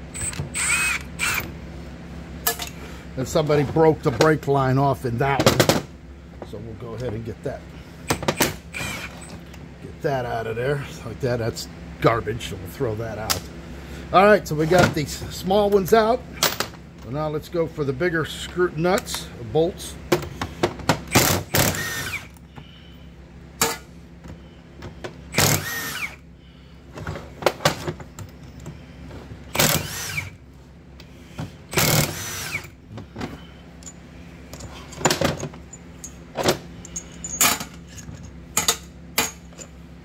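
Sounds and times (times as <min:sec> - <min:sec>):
impact wrench whining: 0:00.0 - 0:01.6, 0:08.0 - 0:09.6, 0:20.2 - 0:22.7, 0:23.6 - 0:26.3, 0:27.0 - 0:39.7
metal parts clicking: 0:36.8 - 0:39.7.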